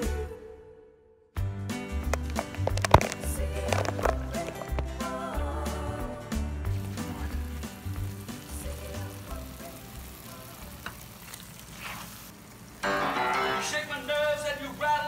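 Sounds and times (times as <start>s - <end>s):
background music with singing: 0.0s - 11.1s
sauce sizzling in a pan: 2.2s - 15.0s.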